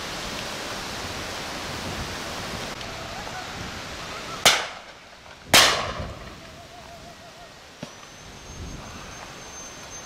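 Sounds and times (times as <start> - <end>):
shotgun shot: 5.5 - 6.1.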